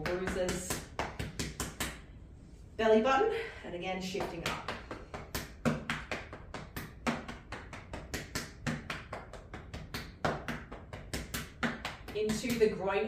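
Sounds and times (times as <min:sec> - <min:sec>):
fingertips tapping on clothing: 0:04.1 - 0:12.7.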